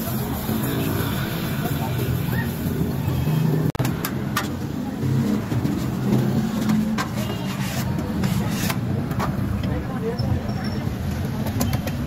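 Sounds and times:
metal spatula scraping on griddle: 6.4 - 9.0.

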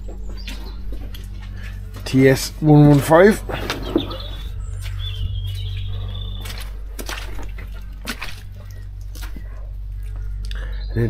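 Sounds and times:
steady low hum: 0.0 - 11.0
bird whistled call: 3.5 - 6.6.

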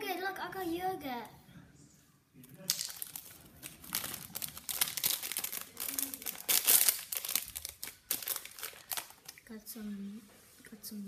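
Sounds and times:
packaging crinkling and tearing: 2.7 - 9.4.

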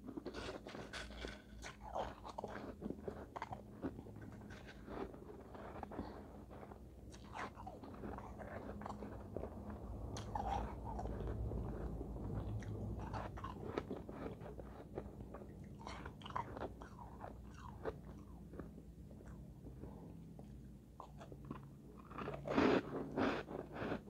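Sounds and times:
crunching ice between teeth: 0.1 - 9.2.

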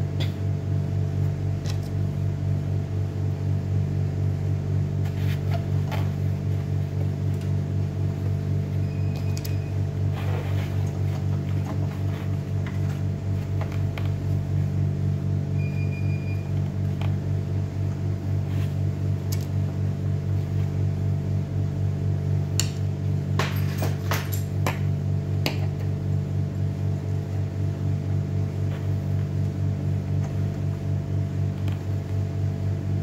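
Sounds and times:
high beep: 15.6 - 16.5.

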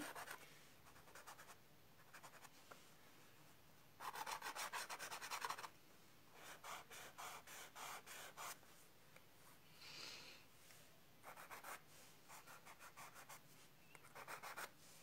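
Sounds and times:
pencil scratching on paper: 0.0 - 2.5, 4.0 - 5.7, 6.4 - 8.6, 11.2 - 13.4, 14.0 - 14.7.

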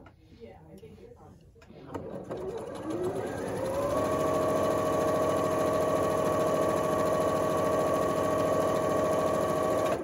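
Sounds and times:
sewing machine stitching: 1.8 - 10.0.

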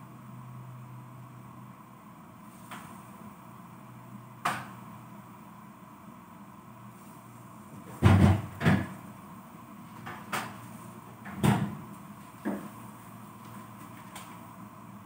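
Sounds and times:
refrigerator door knocks and thumps: 7.9 - 9.0, 11.2 - 11.8.

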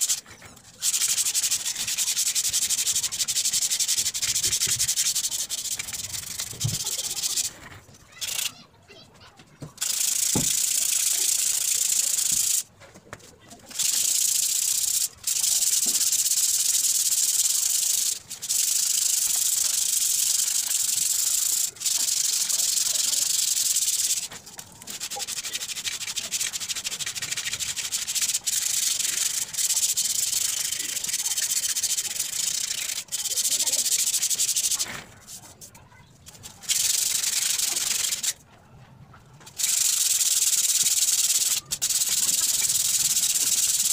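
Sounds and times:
sandpaper rasping on steel tube: 0.0 - 7.6, 36.4 - 38.4.

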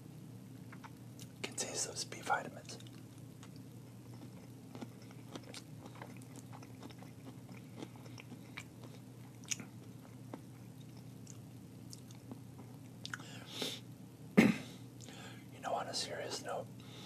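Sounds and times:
man chewing food: 0.7 - 1.4, 2.6 - 13.4.

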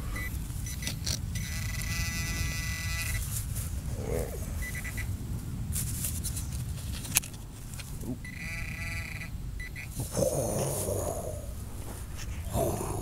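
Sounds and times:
metal detector buzzing tone: 0.0 - 3.3, 8.2 - 10.0
low wind: 0.0 - 13.0
short high beeps: 0.1 - 3.2, 4.6 - 5.1.

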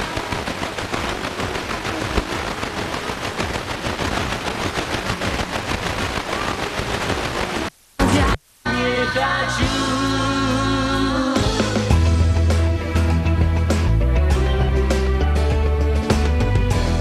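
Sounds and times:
radio static hiss and crackling: 0.0 - 9.7.

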